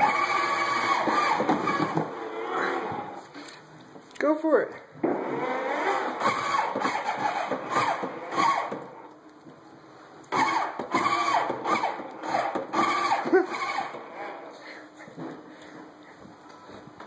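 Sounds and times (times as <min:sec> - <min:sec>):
toy electronic engine revving: 0:00.0 - 0:02.9, 0:05.2 - 0:08.8, 0:10.3 - 0:14.3.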